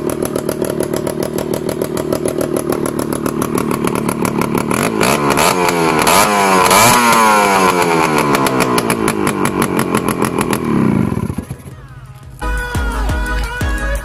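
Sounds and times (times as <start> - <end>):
two-stroke engine revving: 0.0 - 12.2.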